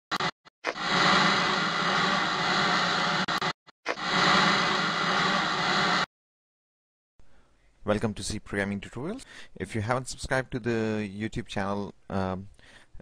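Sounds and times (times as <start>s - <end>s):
harsh static electronic noise: 0.1s - 6.1s.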